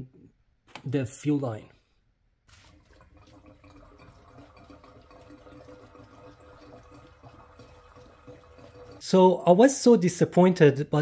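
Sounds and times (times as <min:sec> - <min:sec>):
gasoline pouring into fuel filler: 0:02.5 - 0:09.1.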